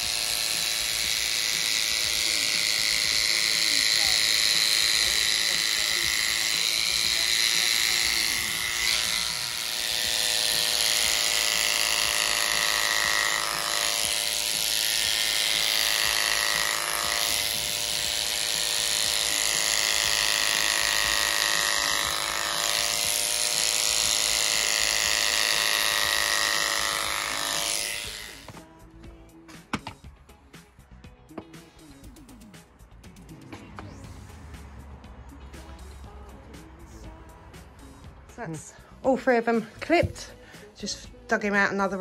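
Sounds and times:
electric clippers running: 0.0s - 28.6s.

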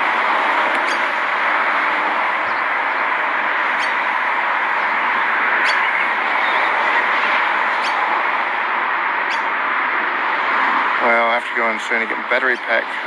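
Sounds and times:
steady loud hiss: 10.9s - 13.0s.

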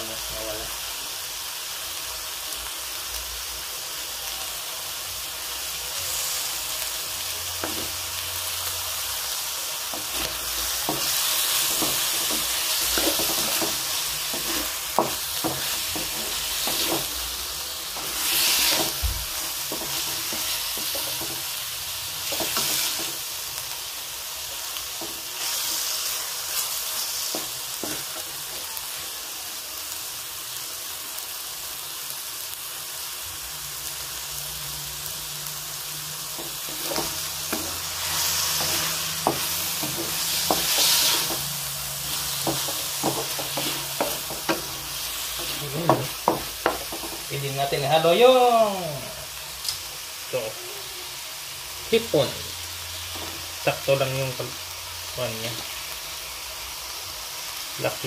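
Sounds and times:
livers sizzling in a wok: 0.0s - 58.0s
wooden spatula scraping pan: 9.9s - 21.5s, 36.4s - 47.4s.

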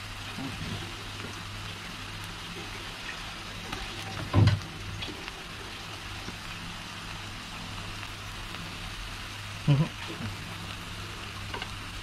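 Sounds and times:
onions sizzling in hot oil: 0.0s - 12.0s
dull thump in pan: 4.2s - 4.6s.

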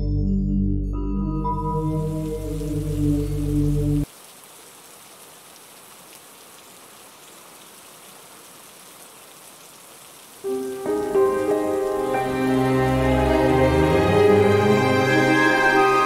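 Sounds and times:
rain hissing: 1.7s - 16.0s
raindrop patter: 2.0s - 12.6s.

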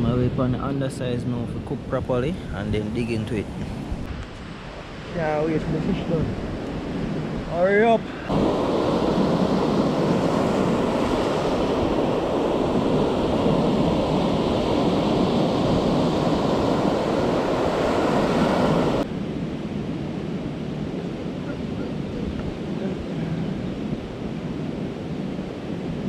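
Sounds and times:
surf washing onto pebble beach: 8.3s - 19.1s.

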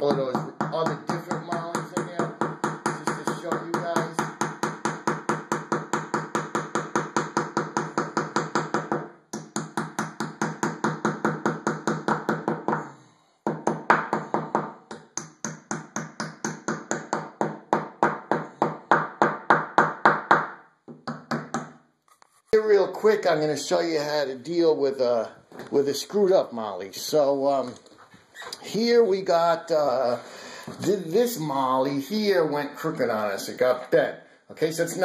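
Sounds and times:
mallet tapping plastic anchors: 13.5s - 21.8s.

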